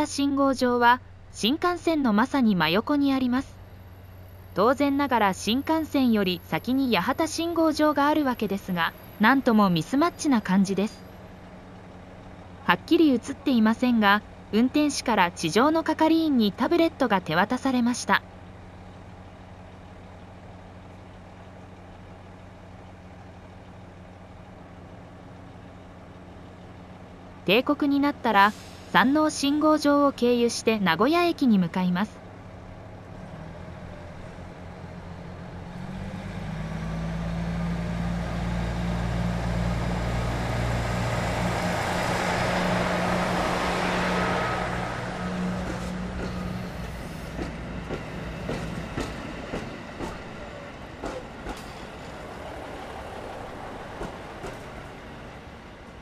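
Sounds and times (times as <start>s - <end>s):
diesel train engine idling: 0.0s - 56.0s
wheels clicking over rail joints: 45.6s - 52.4s.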